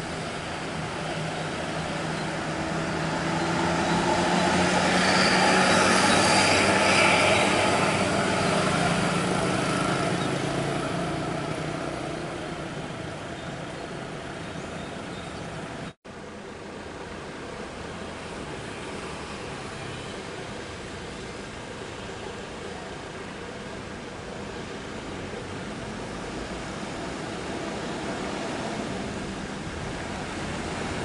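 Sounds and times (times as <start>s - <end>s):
bus driving past: 0.0s - 16.0s.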